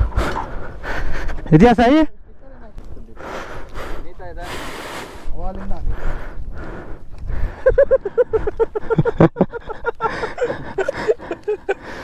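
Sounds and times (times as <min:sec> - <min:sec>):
men's voices: 0:00.1 - 0:06.1.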